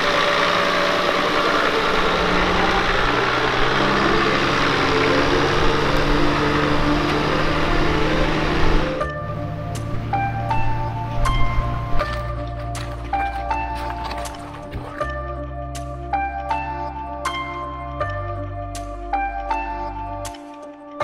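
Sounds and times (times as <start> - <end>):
engine running at low revs: 0.0 - 15.2
music with chime-like notes: 2.4 - 21.0.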